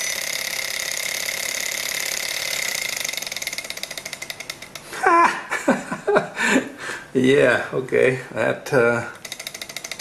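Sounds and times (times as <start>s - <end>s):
small engine whirring clatter: 0.0s - 5.0s, 9.2s - 10.0s
person speaking: 4.9s - 9.2s.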